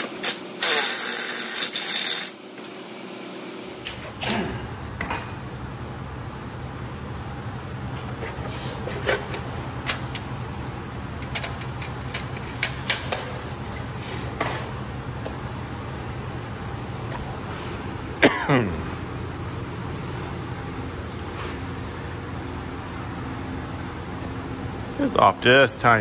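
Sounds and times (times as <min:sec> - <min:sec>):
fan humming: 0:00.0 - 0:26.0.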